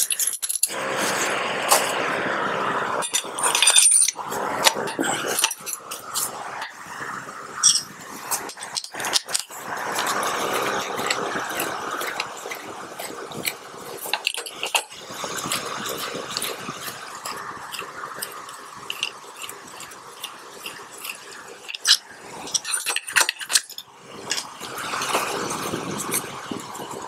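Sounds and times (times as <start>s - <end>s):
small metal clicks and clinks: 0.0s - 0.8s, 3.0s - 6.7s, 21.1s - 25.2s
rough metal scraping: 0.0s - 27.0s.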